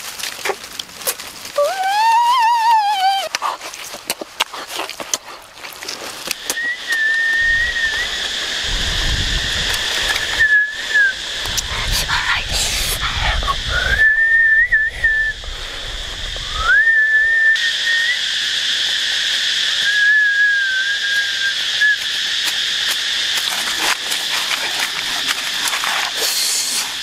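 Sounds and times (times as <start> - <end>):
steady high hiss: 5.9 - 27.0
person whistling: 6.5 - 8.2, 10.4 - 11.2, 13.8 - 15.4, 16.5 - 18.2, 19.8 - 22.0.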